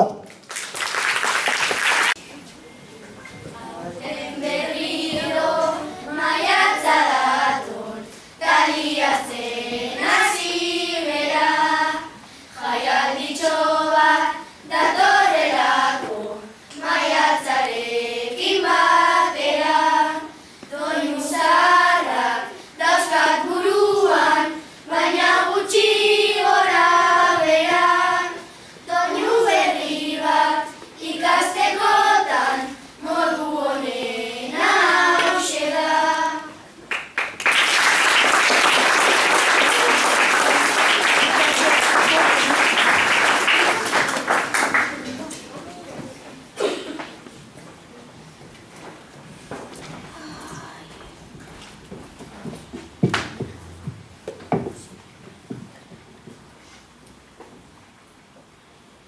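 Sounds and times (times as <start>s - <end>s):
children singing in unison: 3.5s - 36.7s.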